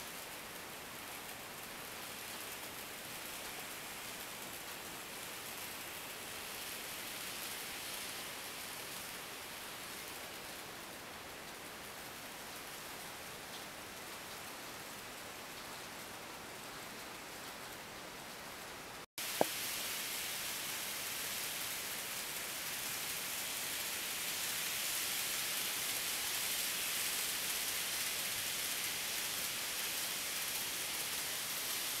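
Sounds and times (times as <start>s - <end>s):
model train rolling and whirring: 19.3s - 32.0s.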